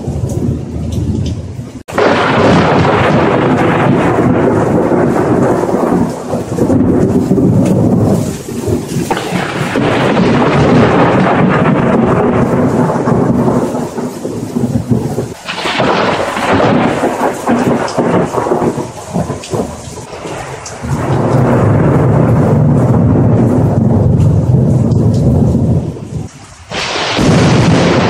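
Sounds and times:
steady rain: 0.0 - 28.0
thunder rumbling: 0.0 - 28.0.

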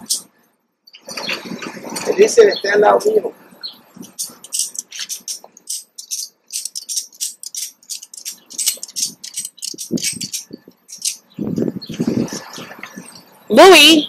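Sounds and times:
strap hardware clicking and rattling: 4.1 - 11.4.

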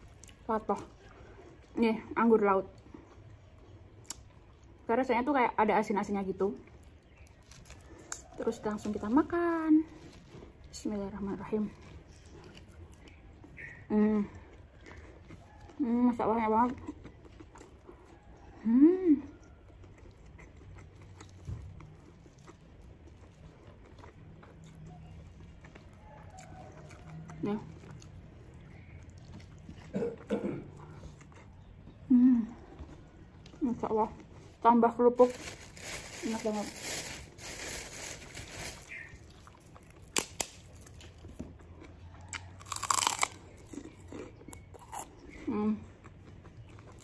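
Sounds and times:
faint chewing with mouth clicks: 0.0 - 4.9, 6.0 - 34.7, 38.9 - 47.0
cracker being bitten and crunched: 39.7 - 41.4, 42.4 - 43.9.

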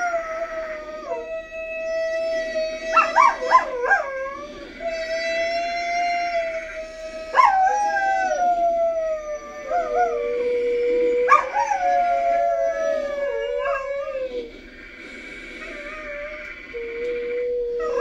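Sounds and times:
dog howling: 0.0 - 15.0, 15.6 - 18.0
frogs croaking chorus: 14.4 - 18.0.

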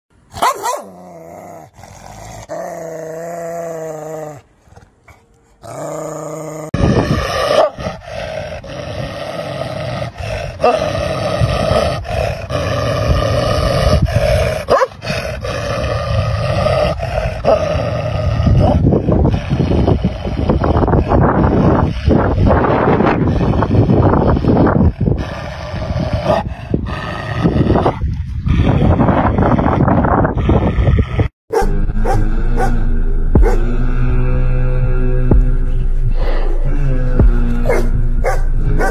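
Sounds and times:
dog growling: 0.8 - 35.5, 36.1 - 38.9
dog snarling: 5.6 - 32.8, 33.4 - 33.6.

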